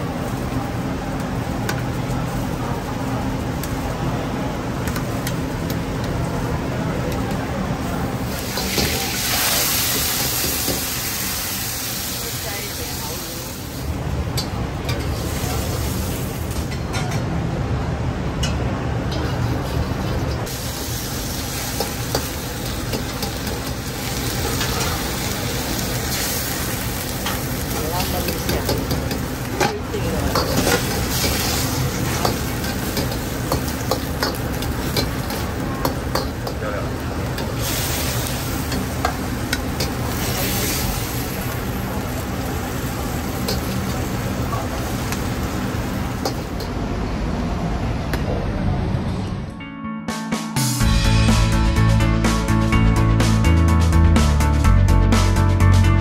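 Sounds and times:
food sizzling and bubbling: 0:00.0 - 0:17.0, 0:18.6 - 0:46.9
gas burner rumbling: 0:00.0 - 0:49.5.

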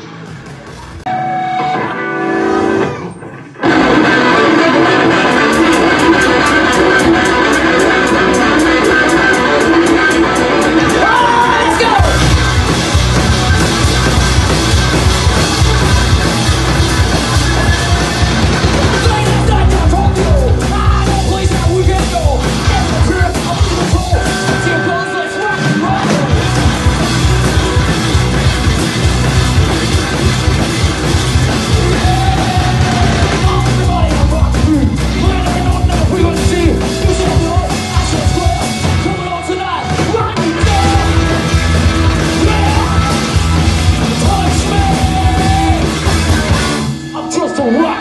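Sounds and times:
drum kit: 0:00.0 - 0:47.1
bass guitar: 0:00.0 - 0:47.5
electric guitars: 0:00.0 - 0:48.0.

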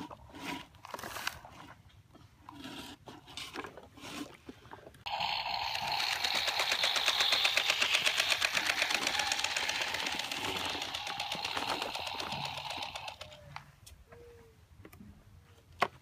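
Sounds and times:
electronic toy engine chugging: 0:05.1 - 0:13.4.

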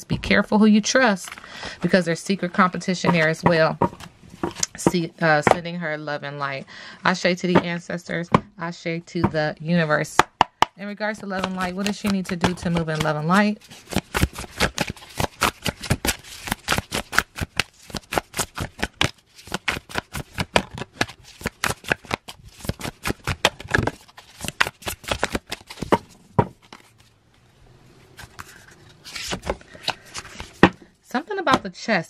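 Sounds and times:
cards being shuffled: 0:11.1 - 0:27.2, 0:28.1 - 0:30.8.

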